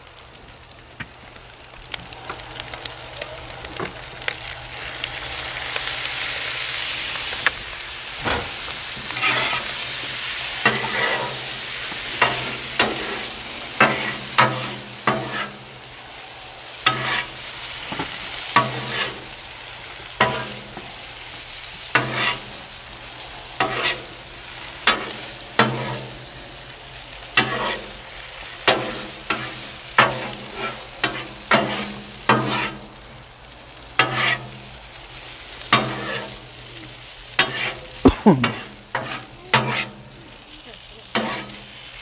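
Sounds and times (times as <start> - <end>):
food sizzling on a griddle: 0.0 - 42.0
metal spatula scraping griddle: 8.9 - 15.7, 16.8 - 17.4, 18.5 - 19.4, 21.9 - 22.6, 23.6 - 24.2, 24.8 - 26.4, 27.3 - 32.9, 34.0 - 36.6, 37.4 - 40.1, 41.1 - 41.9.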